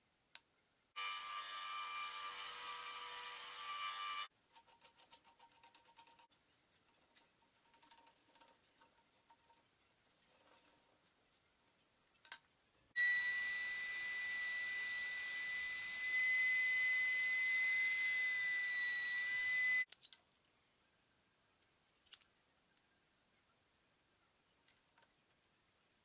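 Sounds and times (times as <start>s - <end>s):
router whining: 1.0s - 4.3s, 13.0s - 19.9s.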